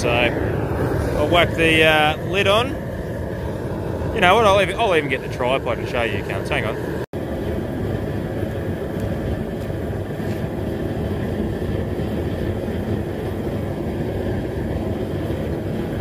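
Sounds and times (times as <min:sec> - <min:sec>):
gas burner roaring: 0:00.0 - 0:16.0.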